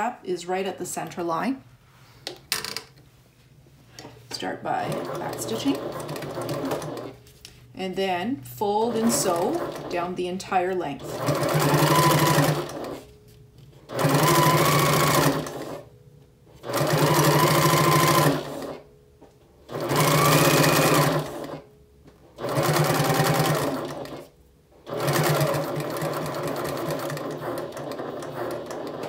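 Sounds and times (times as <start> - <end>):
sewing machine stitching: 4.8 - 7.2, 8.8 - 10.1, 11.0 - 13.0, 13.9 - 15.8, 16.6 - 18.8, 19.7 - 21.6, 22.4 - 29.0.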